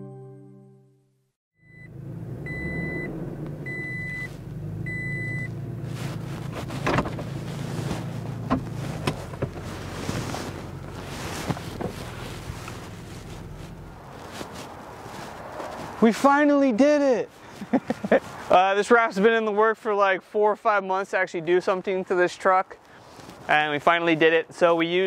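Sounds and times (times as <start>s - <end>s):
short electronic beeps: 2.5s - 3.1s, 3.7s - 4.3s, 4.9s - 5.5s.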